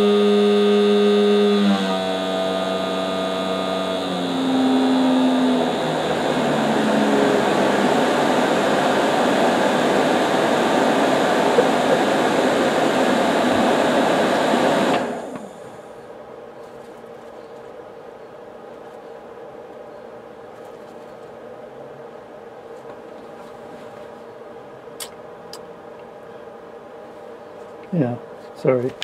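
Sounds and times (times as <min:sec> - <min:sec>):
blower motor whine: 0:00.0 - 0:16.2
fan air rush: 0:00.0 - 0:29.0.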